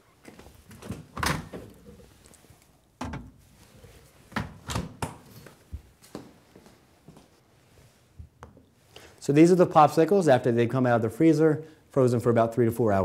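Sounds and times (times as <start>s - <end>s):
knocks and thuds of kitchen handling: 3.0s - 3.4s, 4.3s - 5.2s.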